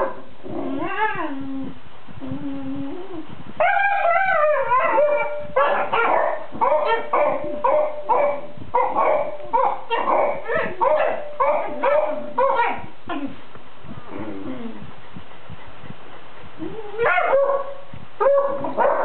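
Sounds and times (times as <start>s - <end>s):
puppy whining: 0.6s - 7.7s, 16.6s - 19.0s.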